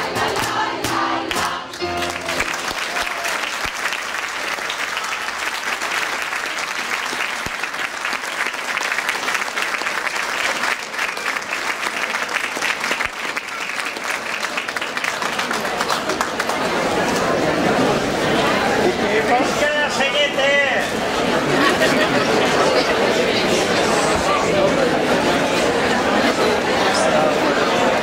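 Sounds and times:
choir singing: 0.0s - 2.2s
audience applauding: 0.3s - 17.4s.

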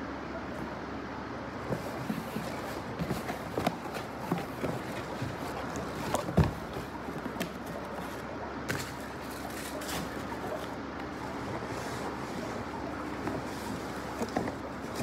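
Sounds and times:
cardboard taps and scuffs: 1.6s - 10.7s.

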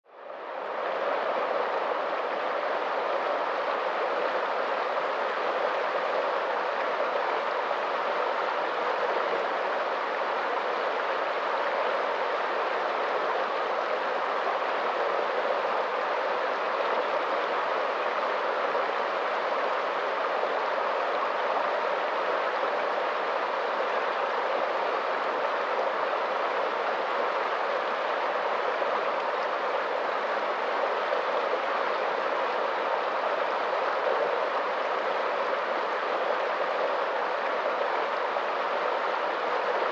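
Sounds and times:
river rushing through rapids: 0.1s - 39.9s.

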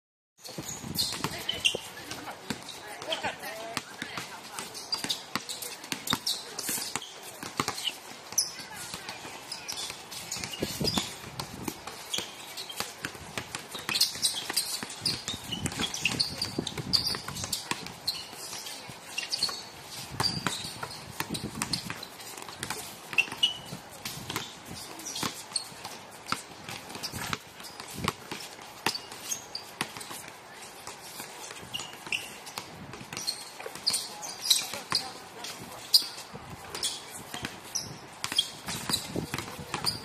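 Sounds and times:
short high squeaks: 0.4s - 3.3s, 13.7s - 28.0s, 28.9s - 30.2s, 31.1s - 32.6s, 33.2s - 35.2s, 36.8s - 39.2s
basketball bouncing on hard court: 0.5s - 19.6s, 20.2s - 30.3s, 31.5s - 35.2s, 36.7s - 40.0s.

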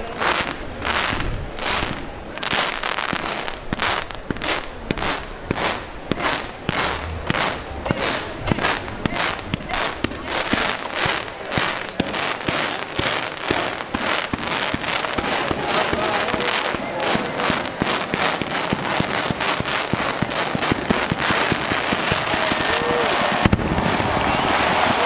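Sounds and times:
fireworks banging: 0.0s - 25.0s.

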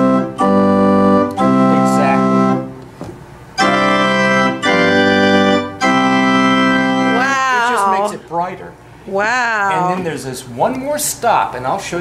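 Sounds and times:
pipe organ chords: 0.0s - 8.0s.

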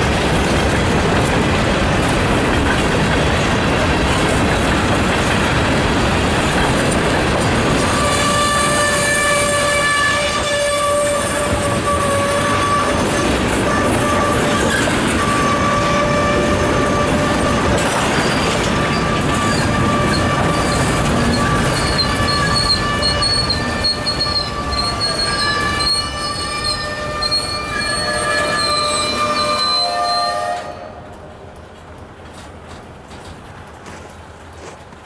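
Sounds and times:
train wheels roaring on track: 0.0s - 35.0s
high-pitched wheel squeal: 7.8s - 30.8s.

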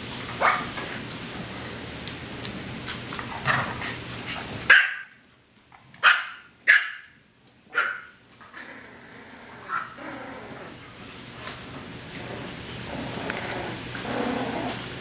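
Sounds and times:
dogs barking and yipping: 0.0s - 0.9s, 3.3s - 5.2s, 6.0s - 10.0s.

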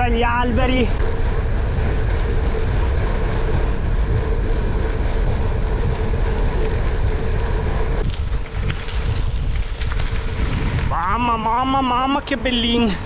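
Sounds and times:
bike tyres rolling on dirt: 0.0s - 13.0s
wind rushing over microphone: 0.0s - 13.0s.

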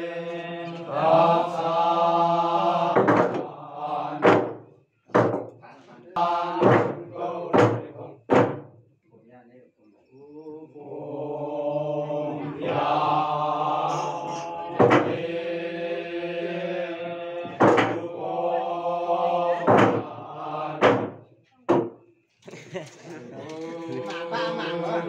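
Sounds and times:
men chanting in long notes: 0.0s - 4.5s, 6.1s - 8.2s, 10.1s - 21.2s, 23.3s - 25.0s
beaters striking hollow log drum: 2.9s - 3.5s, 4.2s - 5.5s, 6.5s - 8.7s, 14.8s - 15.2s, 17.4s - 18.1s, 19.6s - 20.1s, 20.8s - 22.0s.

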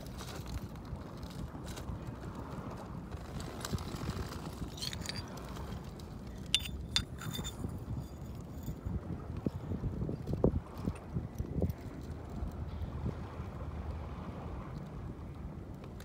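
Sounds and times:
wind rumbling on microphone: 0.0s - 16.0s
pottery shards clinking on pebbles: 4.7s - 5.4s, 6.4s - 8.7s.

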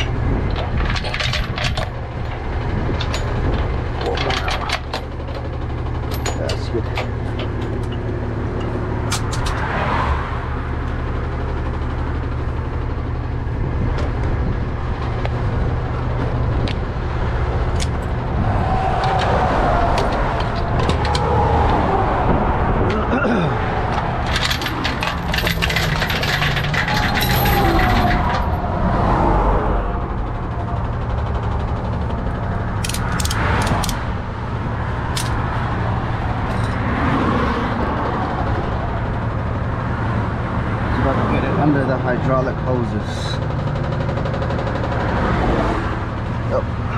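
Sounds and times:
passing traffic: 0.0s - 46.9s
truck engine idling: 0.0s - 46.9s
chains clinking: 6.0s - 8.0s, 24.2s - 28.6s, 36.5s - 36.8s.

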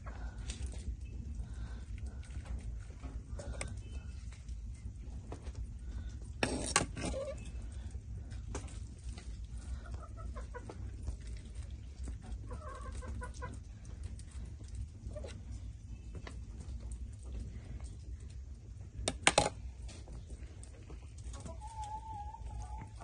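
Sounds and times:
chickens clucking: 7.1s - 7.7s, 8.3s - 15.6s, 20.7s - 23.0s.

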